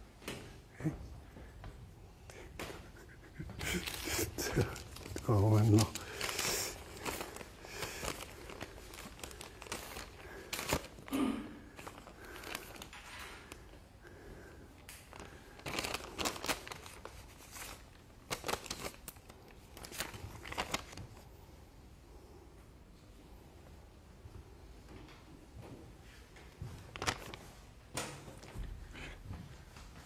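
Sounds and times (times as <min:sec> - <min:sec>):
paper crinkling and rustling: 0:03.6 - 0:11.1, 0:11.7 - 0:13.7, 0:14.9 - 0:21.3, 0:26.5 - 0:28.6.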